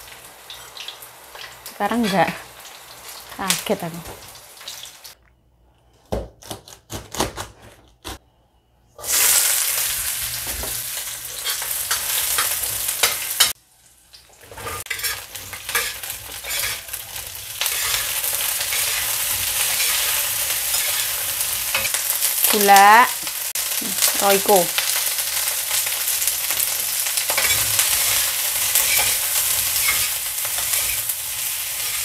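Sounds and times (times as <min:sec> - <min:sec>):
vegetables sizzling in hot oil: 0:00.0 - 0:05.2, 0:09.0 - 0:32.0
metal spatula stirring in wok: 0:14.6 - 0:22.0, 0:27.3 - 0:31.1.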